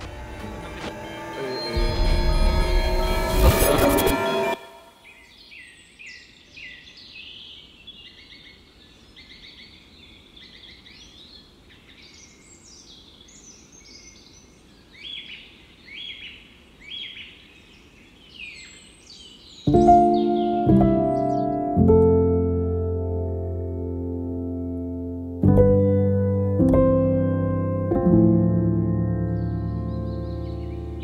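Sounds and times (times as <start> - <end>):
music: 0.0 - 4.9, 19.7 - 31.0
birds chirping and twittering: 0.0 - 21.8, 29.2 - 31.0.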